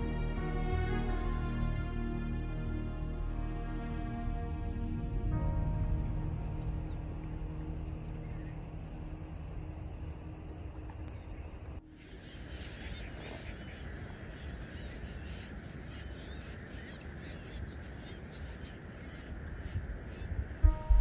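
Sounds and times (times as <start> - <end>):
low rumble: 0.0 - 12.4, 20.6 - 21.0
steady low hum: 0.0 - 13.0
many birds calling: 7.8 - 20.6.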